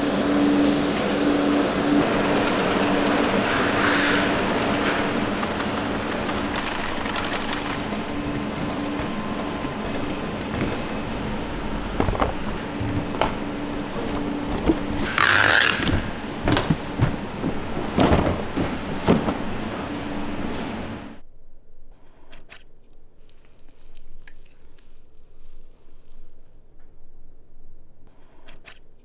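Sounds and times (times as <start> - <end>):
factory machinery humming: 0.0 - 21.3.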